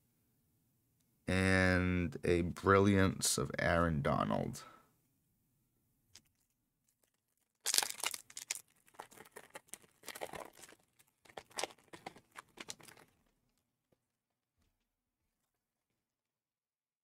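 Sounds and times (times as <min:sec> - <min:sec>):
foil wrapper tearing and crinkling: 0:06.2 - 0:13.6.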